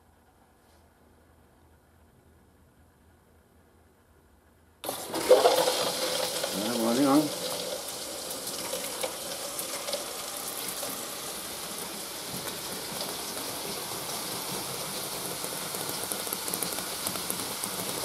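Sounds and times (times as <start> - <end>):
water hissing and spraying: 4.8 - 18.0.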